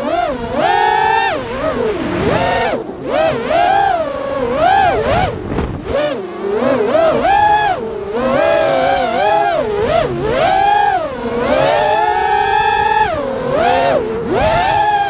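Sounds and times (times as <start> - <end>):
drone motors and propellers whining: 0.0 - 15.0.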